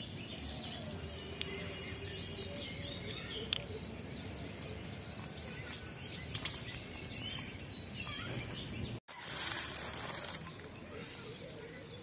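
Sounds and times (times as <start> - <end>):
bird chirps: 0.0 - 9.0.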